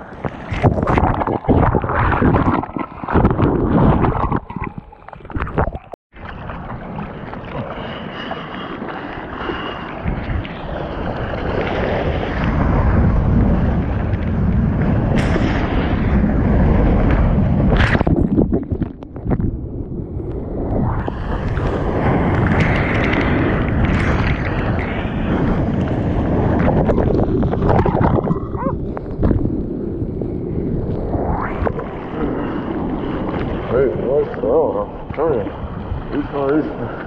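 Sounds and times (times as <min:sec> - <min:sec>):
surf water splashing: 0:00.0 - 0:19.4
wind on microphone: 0:00.0 - 0:37.0.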